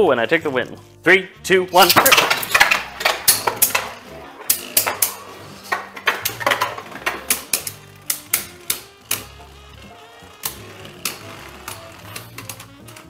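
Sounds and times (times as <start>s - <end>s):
background music: 0.0s - 13.0s
spinning tops clacking: 1.8s - 13.0s.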